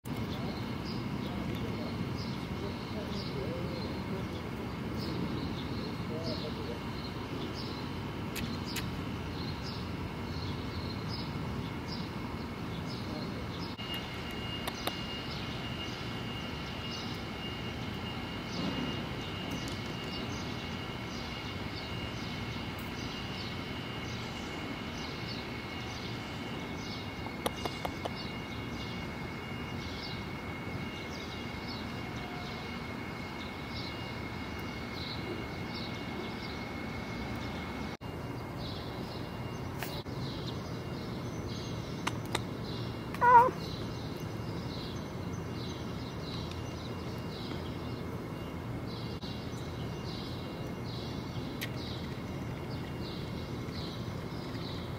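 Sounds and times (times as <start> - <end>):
low rumble and hiss: 0.1 - 54.9
faint steady high tones: 9.1 - 41.8
short pitched call: 43.2 - 43.7.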